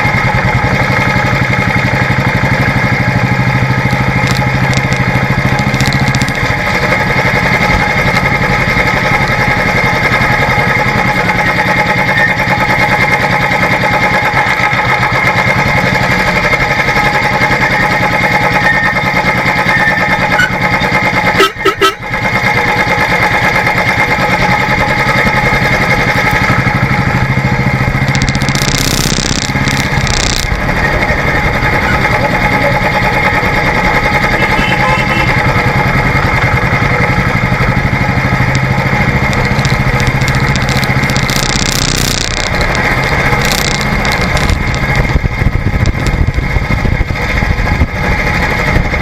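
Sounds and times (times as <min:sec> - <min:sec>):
motorcycle engine running: 0:00.0 - 0:49.0
loud pulsing burst: 0:28.0 - 0:31.8, 0:38.9 - 0:48.0.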